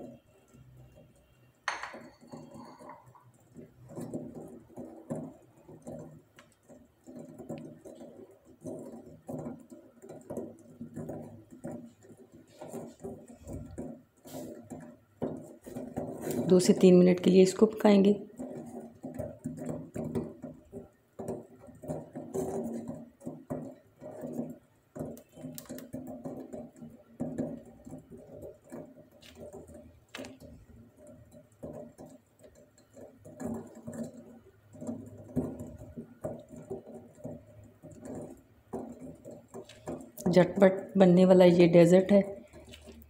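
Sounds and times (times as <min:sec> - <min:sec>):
spatula scraping a pot: 0:06.6 - 0:20.7.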